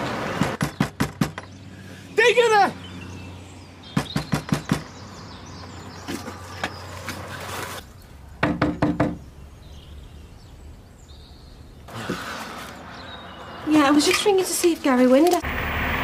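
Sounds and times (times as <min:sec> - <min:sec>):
knocking on glass window: 0:08.4 - 0:09.2.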